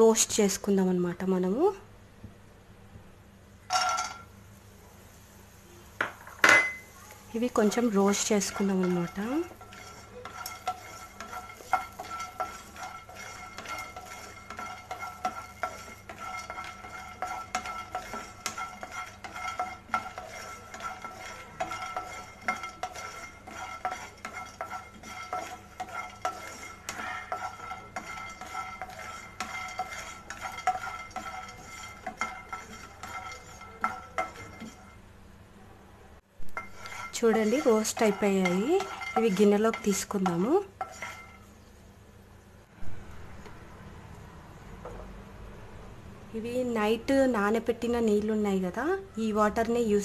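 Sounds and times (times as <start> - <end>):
kernels rattling in pan: 3.7 - 4.3, 6.0 - 35.0, 36.6 - 41.4
wooden spatula scraping pan: 7.4 - 35.0, 36.5 - 41.5.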